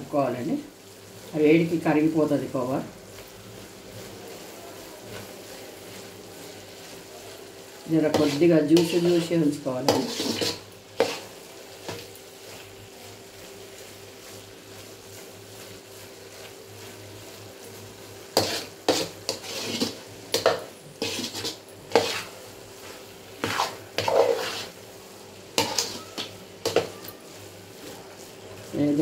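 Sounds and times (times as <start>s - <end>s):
metal spatula scraping a pan: 8.0s - 12.7s, 18.2s - 24.8s, 25.5s - 29.0s.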